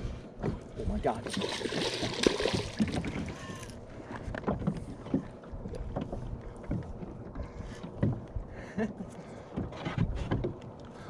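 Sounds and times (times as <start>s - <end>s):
fish thrashing and splashing: 1.2s - 3.8s.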